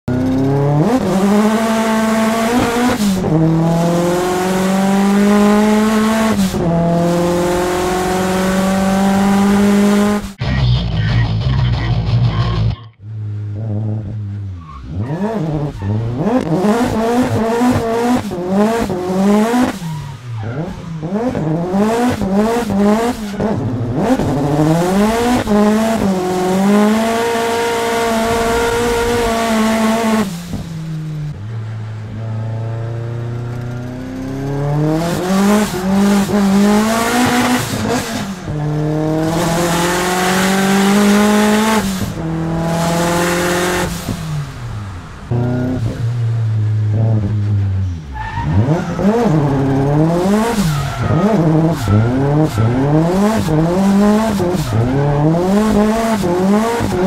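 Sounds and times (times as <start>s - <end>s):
car engine revving hard: 0.1s - 10.4s, 13.1s - 31.3s, 32.1s - 57.0s
tyres screeching: 47.9s - 57.0s.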